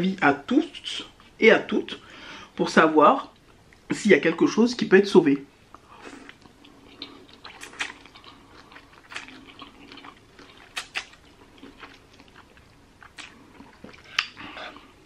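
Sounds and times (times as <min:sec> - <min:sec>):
wet mouth clicks and smacks: 0:05.7 - 0:11.2, 0:13.0 - 0:14.5
noodles slurped and chewed: 0:05.8 - 0:15.0.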